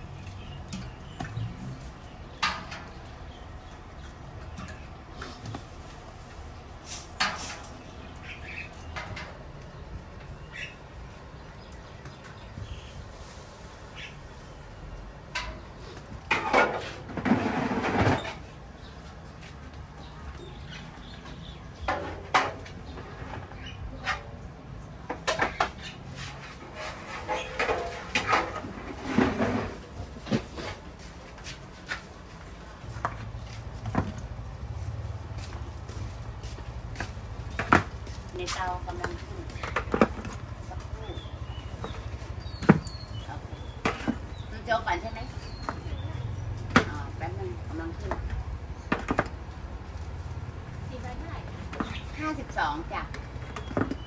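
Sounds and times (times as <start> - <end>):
cooking utensils clicking and scraping: 0.0 - 10.6, 20.8 - 34.3
utensils clattering: 25.2 - 29.8.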